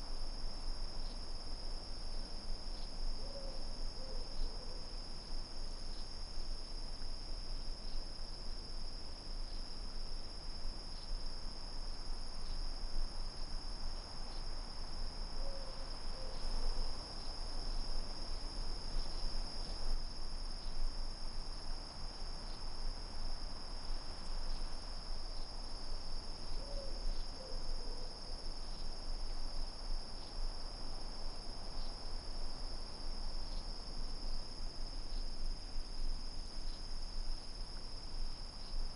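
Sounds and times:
crickets trilling: 0:00.0 - 0:38.9
faint low animal call: 0:15.4 - 0:16.5.

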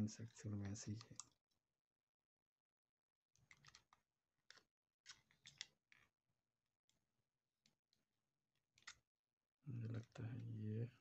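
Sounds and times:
plastic camera body clicks and scrapes: 0:08.8 - 0:09.0.

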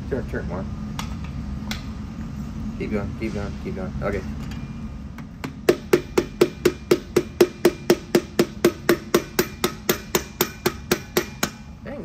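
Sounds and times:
rapid ringing metal tapping: 0:05.4 - 0:11.7.

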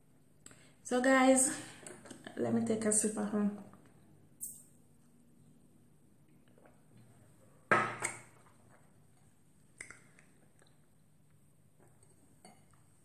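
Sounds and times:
person sipping and swallowing: 0:06.3 - 0:07.4, 0:08.4 - 0:12.8
faint mouth clicks: 0:09.8 - 0:10.8.

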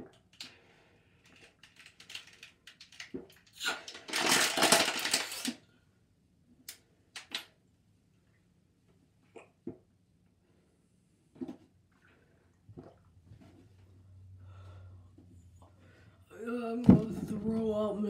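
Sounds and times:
plastic bottle crinkling: 0:01.3 - 0:05.6.

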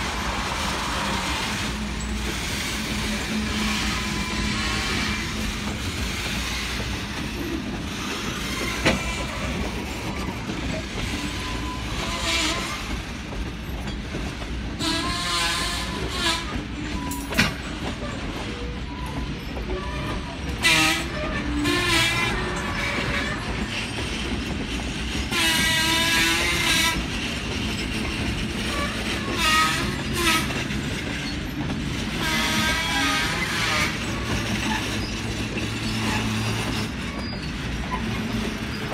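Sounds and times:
train wheels rumbling on rail: 0:00.0 - 0:38.9
wheels squealing: 0:25.6 - 0:38.9.

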